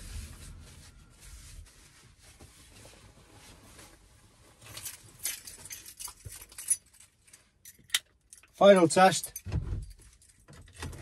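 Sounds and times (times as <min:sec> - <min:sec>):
tissue rustling: 0:00.0 - 0:05.2
keys jingling: 0:04.7 - 0:10.4.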